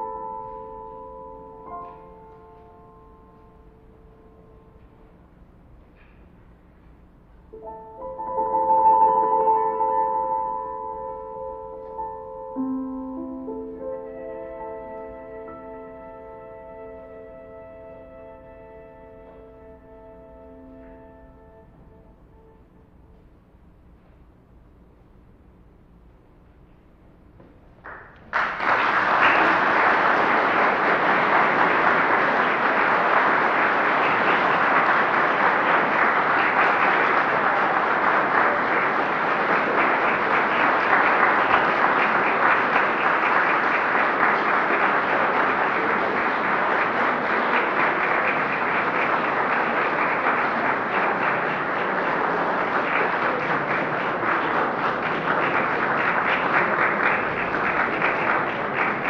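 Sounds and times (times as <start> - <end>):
audience applauding: 27.8 - 59.0.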